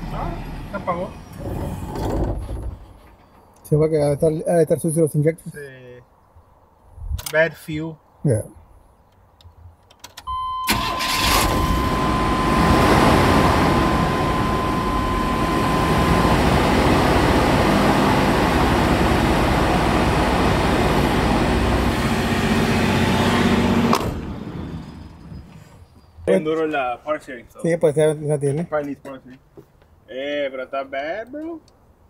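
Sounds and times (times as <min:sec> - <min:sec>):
steady warning tone: 0:10.3 - 0:23.5
pickup engine cranking and running: 0:10.7 - 0:25.6.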